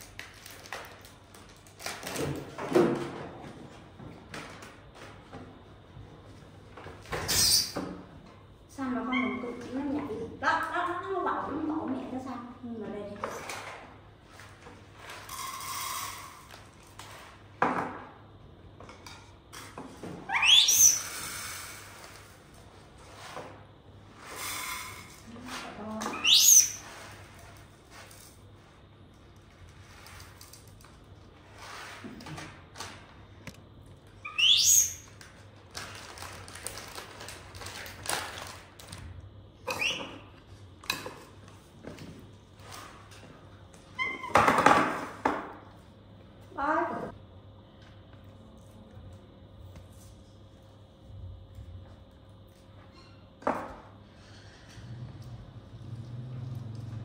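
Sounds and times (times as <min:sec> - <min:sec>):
monkey squealing: 0:20.3 - 0:21.0, 0:34.2 - 0:35.0.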